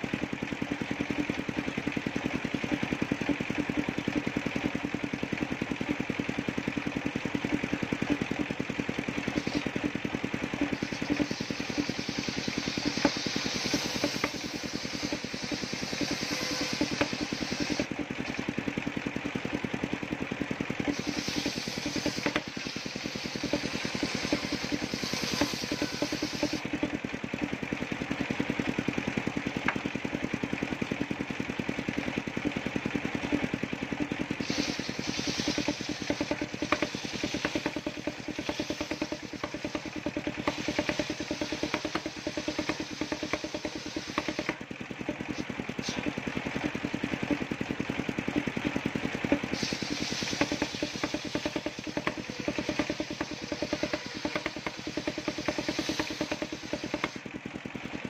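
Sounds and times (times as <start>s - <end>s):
saw engine running: 0.0s - 58.0s
saw blade ripping wood: 34.4s - 44.4s.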